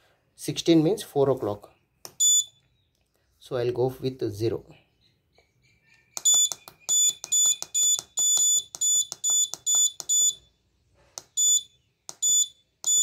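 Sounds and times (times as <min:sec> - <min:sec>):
buzzer short high beeps: 0:06.2 - 0:10.4, 0:11.4 - 0:13.0.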